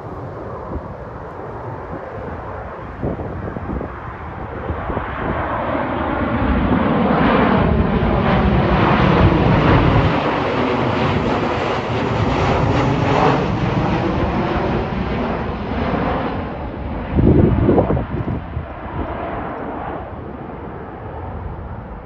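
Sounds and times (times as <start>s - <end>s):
jet airliner passing overhead: 0.0s - 22.0s.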